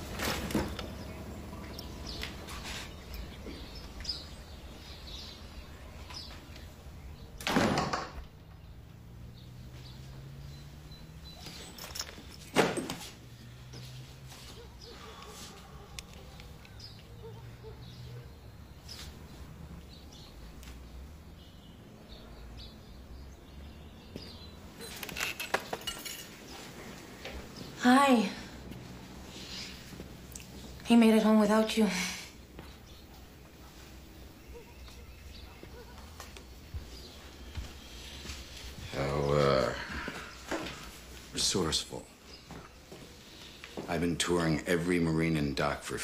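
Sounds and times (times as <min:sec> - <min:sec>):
door shutting with a thud: 0:07.4 - 0:08.2.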